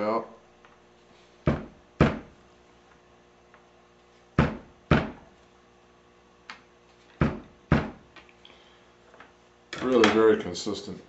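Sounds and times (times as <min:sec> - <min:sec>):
piano keys wooden thuds: 0:01.5 - 0:02.4, 0:04.4 - 0:05.3, 0:07.2 - 0:08.2.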